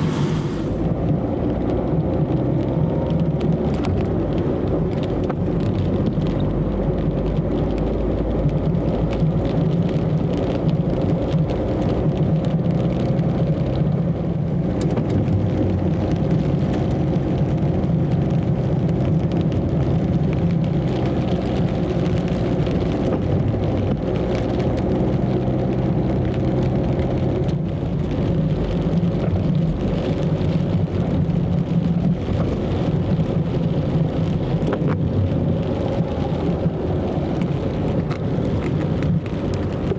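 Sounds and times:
car interior drone on wet road: 0.0 - 39.9
raindrops ticking on windscreen: 0.8 - 39.9.

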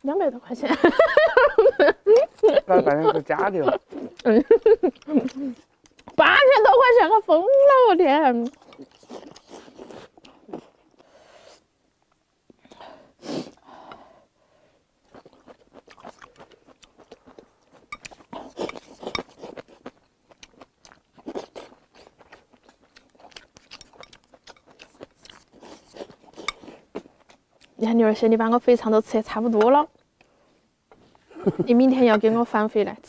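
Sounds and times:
close-up chewing: 2.1 - 6.2, 8.3 - 11.2, 15.0 - 27.8.

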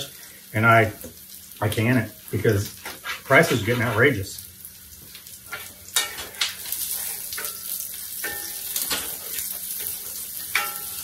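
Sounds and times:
onions sizzling in a skillet: 0.0 - 11.0
wooden spoon scraping a pan: 2.7 - 4.1, 5.5 - 11.0.

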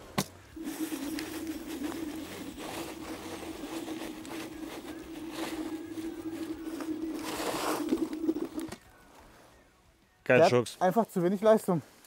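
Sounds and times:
electric motor humming: 0.6 - 8.8
wheels scraping in sand: 0.6 - 8.8.

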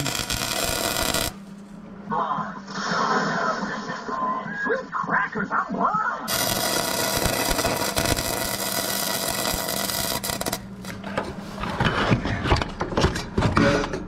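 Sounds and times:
arc welding crackle: 0.0 - 1.7, 6.3 - 11.1.

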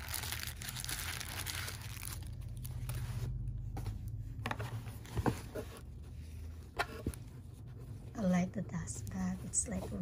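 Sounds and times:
rustling of cloth bag and tissue paper: 0.0 - 3.6, 5.8 - 10.0
low steady hum: 0.0 - 10.0.

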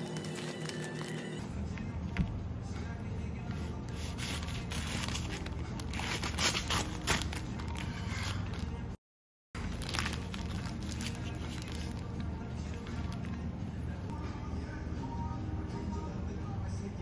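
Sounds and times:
knife sawing through wrapped sandwich: 3.9 - 8.6.

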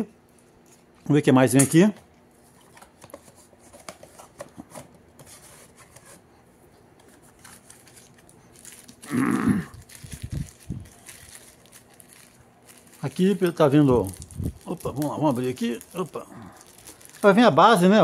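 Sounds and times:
cardboard and paper rustling: 2.5 - 6.2, 7.0 - 9.1, 9.7 - 17.6.

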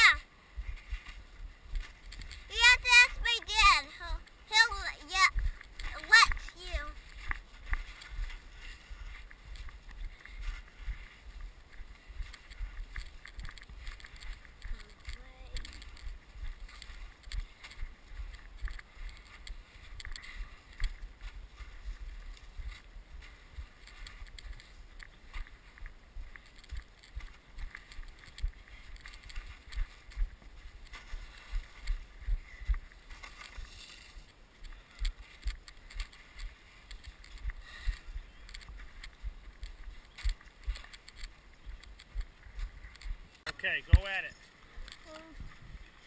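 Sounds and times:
wind rumbling on microphone: 0.0 - 46.0
plastic sled scraping over snow: 33.0 - 38.0.

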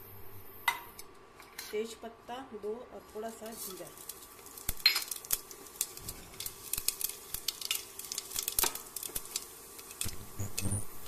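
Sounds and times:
faint oil sizzle: 2.5 - 11.0
seeds popping in hot oil: 3.3 - 11.0.

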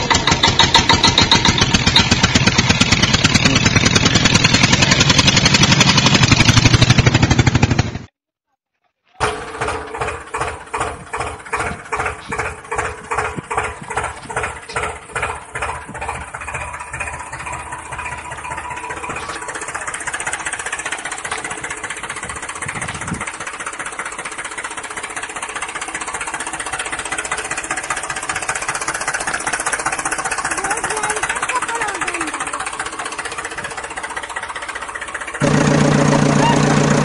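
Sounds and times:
tractor engine chugging: 0.0 - 8.1, 9.2 - 37.0.

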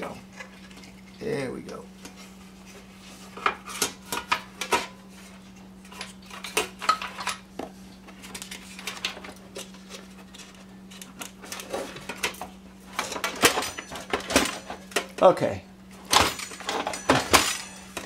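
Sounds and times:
faint steady hum: 0.0 - 18.0
metal pan clattering on plastic: 16.1 - 18.0.

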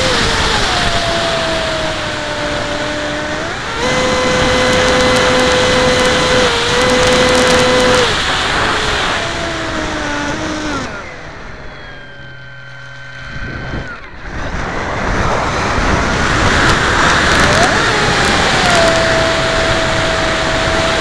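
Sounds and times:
electric motor whine: 0.0 - 21.0
wind rushing over airframe: 13.2 - 21.0.

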